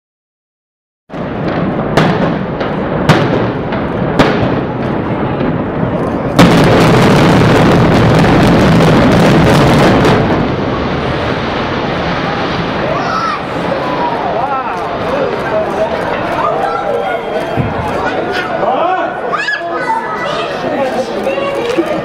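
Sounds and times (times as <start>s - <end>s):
explosive blasts: 1.1s - 18.6s
low rumble of collapsing building: 1.1s - 18.6s.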